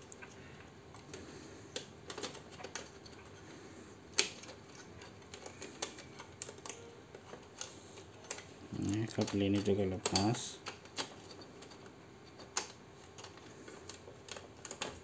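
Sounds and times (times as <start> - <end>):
fingers clicking plastic connectors: 7.6 - 15.0.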